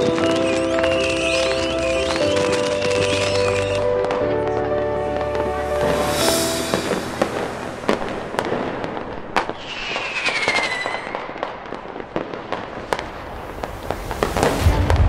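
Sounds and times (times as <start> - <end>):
whistling firework shell: 0.0 - 4.1, 5.8 - 8.7, 9.4 - 11.8
fireworks bangs and crackles: 0.0 - 15.0.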